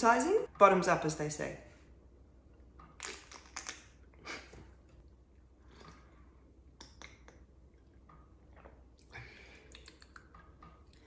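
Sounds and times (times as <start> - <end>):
soft mouth clicks and smacks: 2.8 - 5.1, 5.7 - 11.0.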